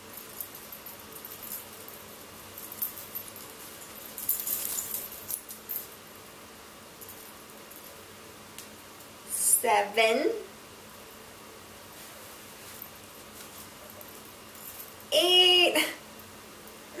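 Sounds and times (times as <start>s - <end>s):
metal bracelets clinking: 0.0s - 6.2s, 12.6s - 15.4s
fabric rustling: 0.1s - 5.9s, 11.8s - 15.1s.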